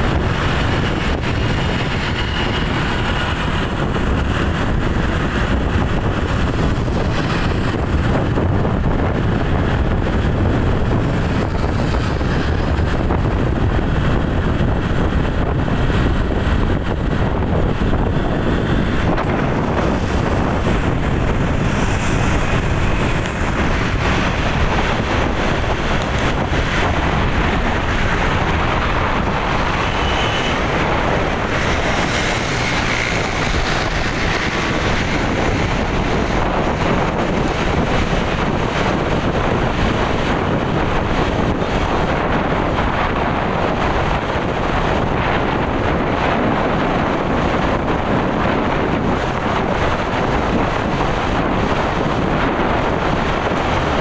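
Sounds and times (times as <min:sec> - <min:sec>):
road and vehicle noise: 0:00.0 - 0:54.0
wind rushing over microphone: 0:00.0 - 0:54.0.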